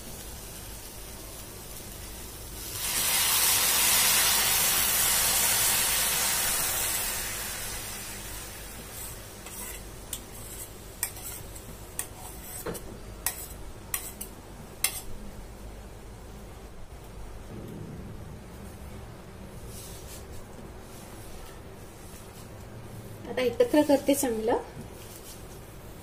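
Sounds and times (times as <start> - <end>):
milk sizzling in hot pan: 0.0 - 15.2.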